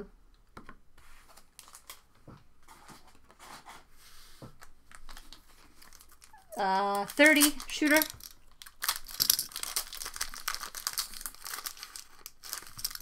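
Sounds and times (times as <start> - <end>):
cards rustling: 1.1 - 2.1, 4.6 - 13.0.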